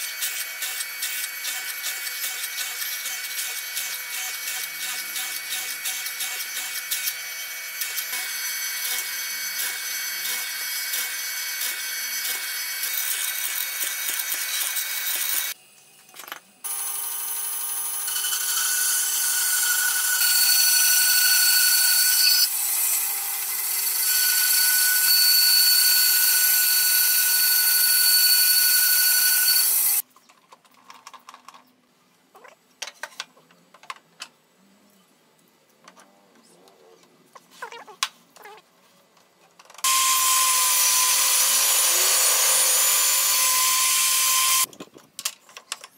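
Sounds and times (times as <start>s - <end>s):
band saw cutting wood: 0.0s - 15.6s, 16.7s - 30.0s, 39.8s - 44.7s
drill press boring into wood: 16.7s - 30.0s, 39.8s - 44.7s.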